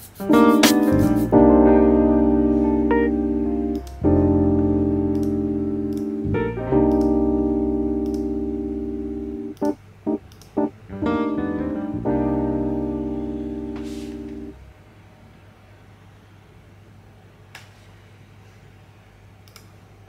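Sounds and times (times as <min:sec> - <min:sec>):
slow piano chords: 0:00.2 - 0:14.8
short piano notes: 0:00.3 - 0:14.6.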